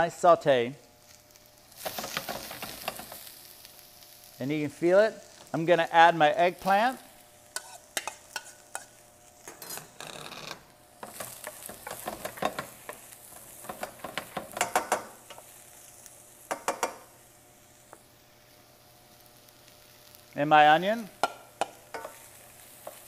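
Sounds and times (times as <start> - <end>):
vegetables sizzling in oil: 0.2 - 10.0, 10.7 - 23.0
spatula knocking and scraping pan: 1.8 - 3.3, 7.6 - 9.9, 11.0 - 15.5, 16.5 - 17.1, 21.2 - 23.0.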